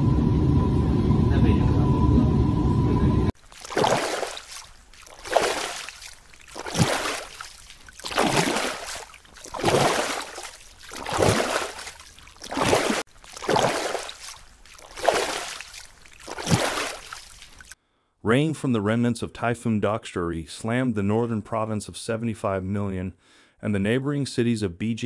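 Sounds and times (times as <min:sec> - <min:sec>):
floodwater sloshing: 0:03.4 - 0:17.8.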